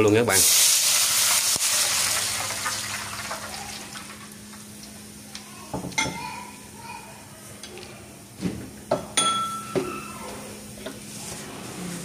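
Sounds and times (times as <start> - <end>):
liquid sizzling in hot oil: 0.0 - 5.2.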